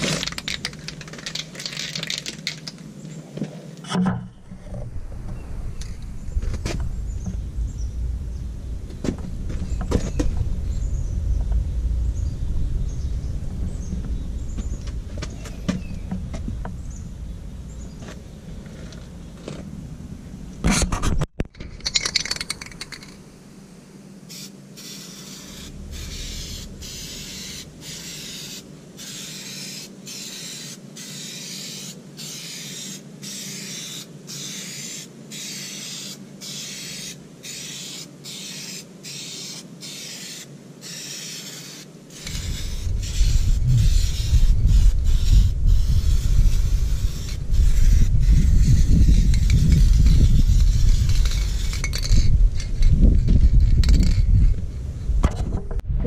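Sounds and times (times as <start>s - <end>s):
spray paint can hissing: 0.0s - 2.9s, 24.3s - 54.2s.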